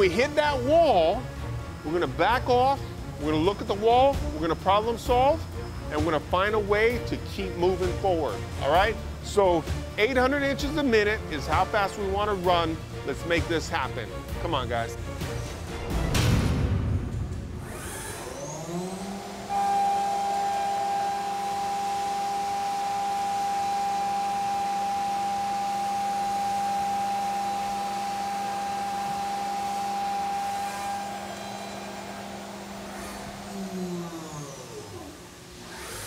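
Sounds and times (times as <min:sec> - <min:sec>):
high whine of cutting metal: 0:00.0 - 0:09.6, 0:17.6 - 0:36.0
mill spindle hum: 0:17.6 - 0:36.0.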